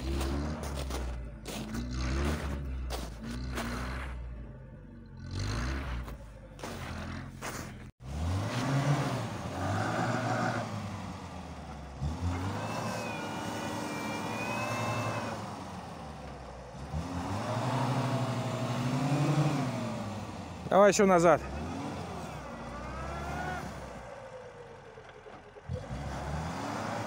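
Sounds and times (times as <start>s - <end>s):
wheels spinning in snow: 0.0s - 4.4s, 5.0s - 19.5s
car engine revving: 0.0s - 27.0s.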